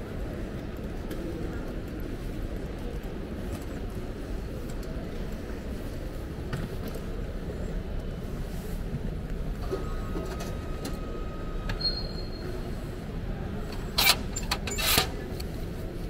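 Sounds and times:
terminal hall rumble: 0:00.0 - 0:16.0
ticket printer tone: 0:09.6 - 0:12.2, 0:13.7 - 0:15.2.

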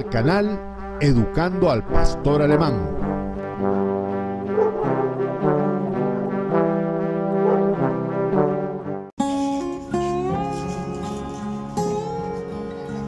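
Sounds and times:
brass theme music: 0:00.0 - 0:13.0
music: 0:00.0 - 0:13.0.

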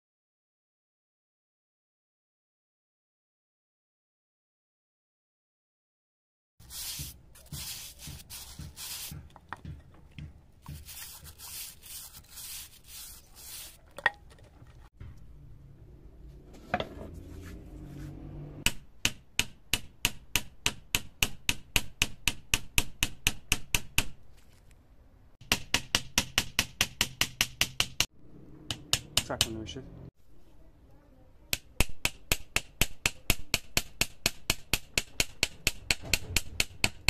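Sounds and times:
rough scrubbing: 0:06.6 - 0:15.0.

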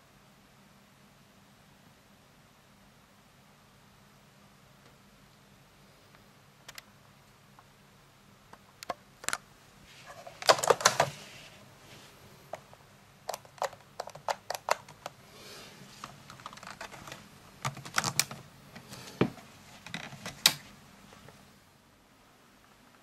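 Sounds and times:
plastic rifle clicks and rattles: 0:10.4 - 0:11.1, 0:13.3 - 0:15.1.

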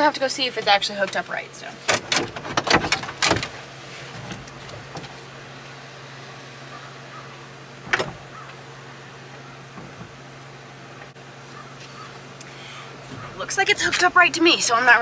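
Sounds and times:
truck engine idling: 0:00.0 - 0:15.0.

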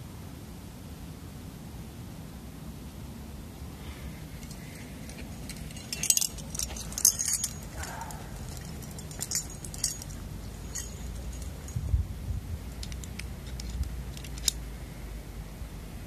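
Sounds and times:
carabiners clinking together: 0:04.4 - 0:11.8, 0:12.6 - 0:14.6.

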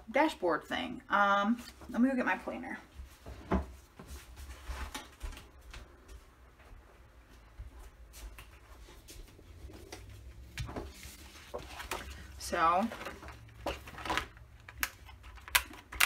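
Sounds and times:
faint knocks and rustles: 0:02.9 - 0:12.3.

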